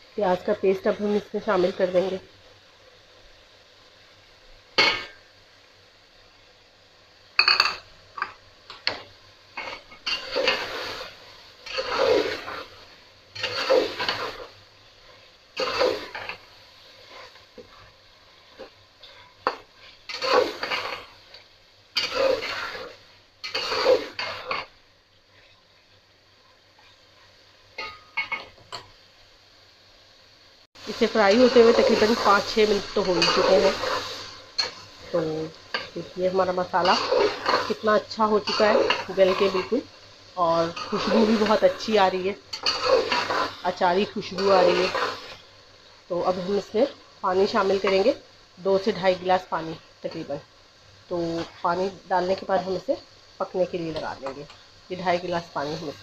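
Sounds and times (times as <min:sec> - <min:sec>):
metal spoon scraping a pot: 0:13.4 - 0:14.5, 0:19.0 - 0:21.1, 0:22.0 - 0:24.7, 0:42.5 - 0:43.6, 0:44.3 - 0:45.4.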